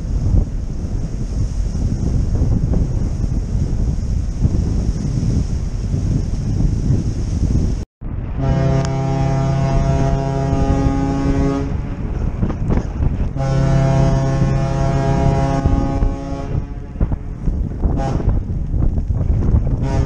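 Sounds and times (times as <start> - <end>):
wind on microphone: 0.0 - 20.0
ferry horn blasts: 8.3 - 17.3, 17.9 - 18.4, 19.8 - 20.0.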